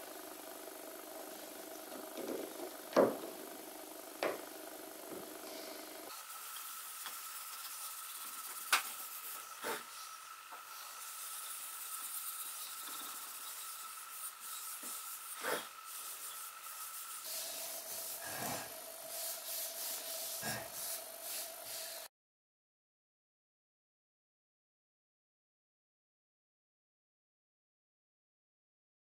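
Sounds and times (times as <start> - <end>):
wood knocking: 1.9 - 3.4, 4.2 - 4.4.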